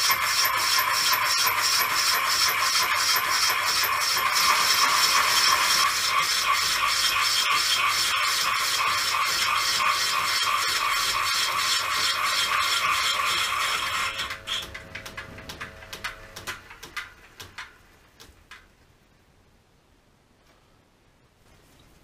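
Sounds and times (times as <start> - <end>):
milling tool rasping on metal: 0.0 - 14.7
faint machine hum: 10.1 - 22.0
scattered clicks: 14.2 - 18.7.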